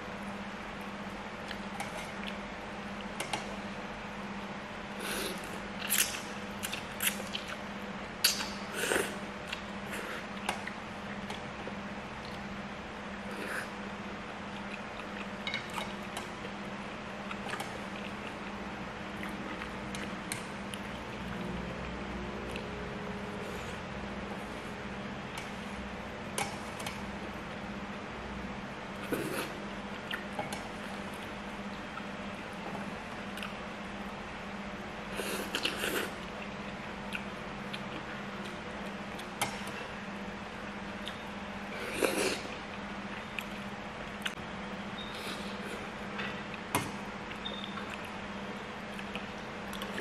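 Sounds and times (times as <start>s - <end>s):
steady low hum: 0.0s - 50.0s
quiet chewing: 1.4s - 2.4s, 13.3s - 16.6s, 17.2s - 22.7s, 29.0s - 33.6s, 35.2s - 39.8s, 41.0s - 44.4s, 45.0s - 48.2s, 48.8s - 50.0s
chewing: 14.3s - 16.6s, 17.2s - 22.7s, 48.8s - 50.0s.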